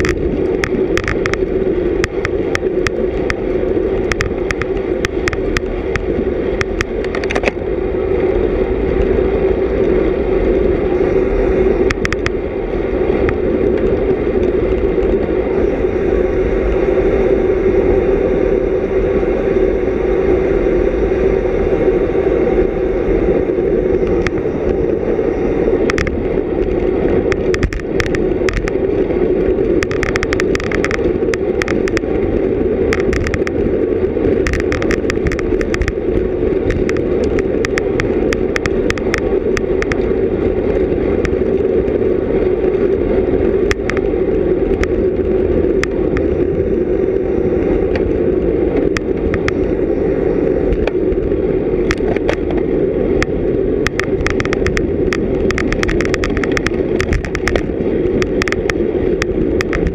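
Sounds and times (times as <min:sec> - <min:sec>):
sharp clicks and ticks: 0:00.0 - 0:07.6, 0:11.8 - 0:12.4, 0:13.2 - 0:15.3, 0:23.9 - 0:24.8, 0:25.8 - 0:32.2, 0:32.8 - 0:42.0, 0:43.6 - 0:46.5, 0:47.8 - 0:49.7, 0:50.7 - 0:59.9
wind and road noise: 0:00.0 - 0:59.9.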